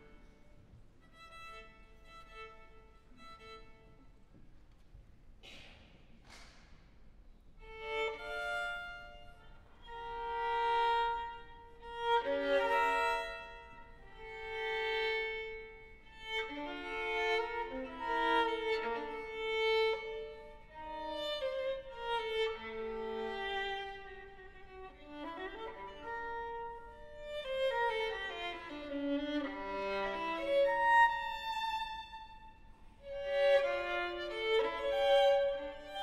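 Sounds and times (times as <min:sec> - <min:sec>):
solo violin playing: 0:00.0 - 0:04.2, 0:07.6 - 0:36.0.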